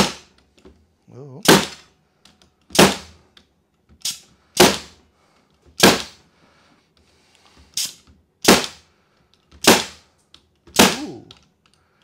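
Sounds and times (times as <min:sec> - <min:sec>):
air stapler firing: 0:04.0 - 0:05.0, 0:05.8 - 0:06.2, 0:07.7 - 0:08.8, 0:09.6 - 0:10.0, 0:10.7 - 0:11.3.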